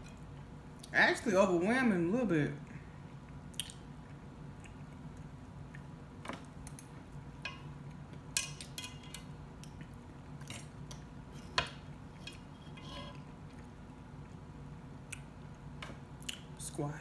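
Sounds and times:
chewing with wet mouth clicks: 3.0 - 5.9
metal fork scraping a pan: 12.2 - 13.3.

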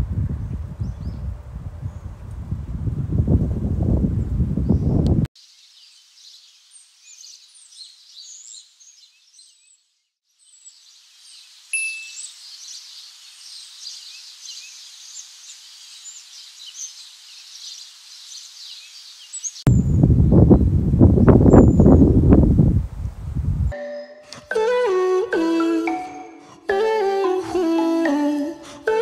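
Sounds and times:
small birds chirping: 4.6 - 22.1
faint hiss: 5.4 - 8.9, 10.4 - 19.6
sharp loud chirp: 11.7 - 12.4.

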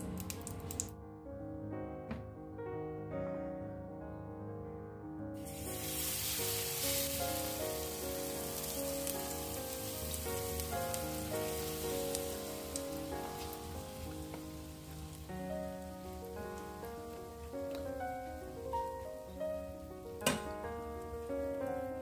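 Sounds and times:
background music: 0.0 - 22.0
cabbage sizzling in a frying pan: 5.4 - 22.0.

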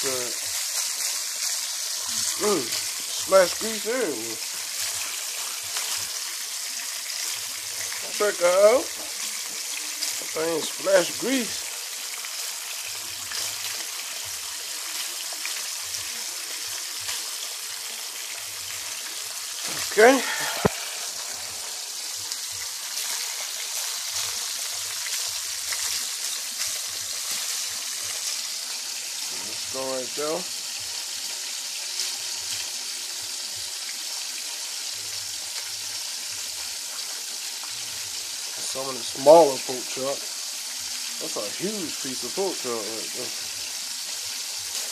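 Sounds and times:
grease spattering crackles: 0.0 - 11.6
meat sizzling in hot oil: 0.0 - 44.9.

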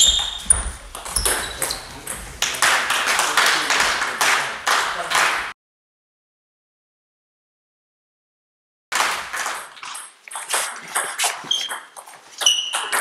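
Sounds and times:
table tennis ball pings: 10.0 - 13.0.

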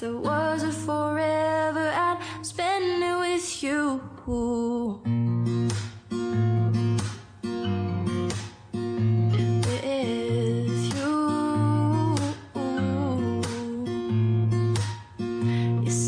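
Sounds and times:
person singing: 0.0 - 5.0, 9.4 - 14.4, 15.3 - 16.0
acoustic guitar: 0.0 - 16.0.

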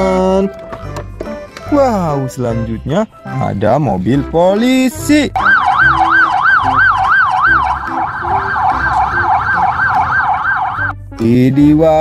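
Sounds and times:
police siren yelping: 5.4 - 11.0.

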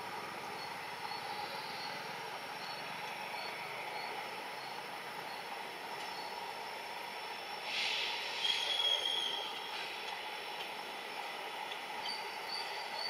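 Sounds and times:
train running noise: 0.0 - 13.0
high-pitched train squeal: 0.6 - 6.5, 7.3 - 10.0, 12.0 - 13.0
brief hiss: 7.6 - 10.0.

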